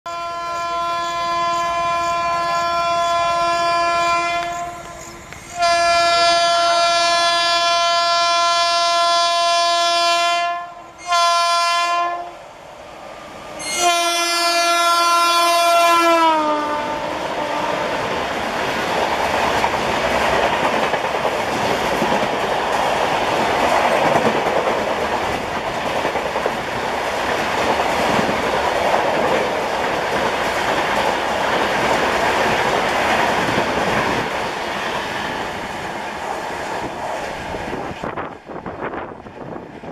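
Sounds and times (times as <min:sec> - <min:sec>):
locomotive horn blasts: 0:00.1 - 0:12.4, 0:13.6 - 0:18.0
train wheels clattering over rail joints: 0:18.0 - 0:35.2.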